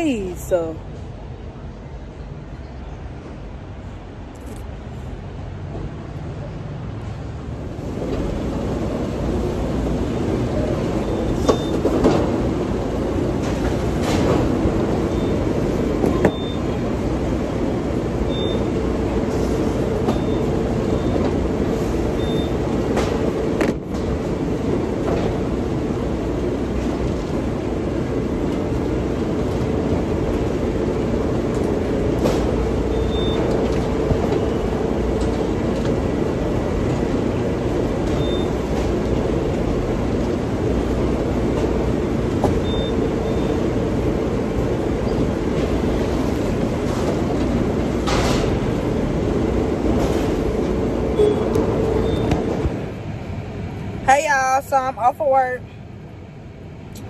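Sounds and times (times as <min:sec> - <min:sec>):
short high beeps: 0:51.2 - 0:52.4.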